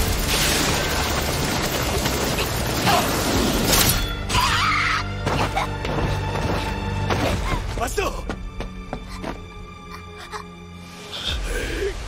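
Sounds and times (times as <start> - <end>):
dramatic music: 0.0 - 12.0.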